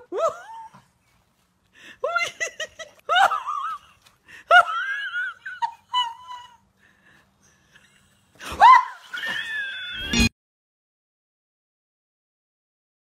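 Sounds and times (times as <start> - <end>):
person laughing hard: 2.0 - 6.6.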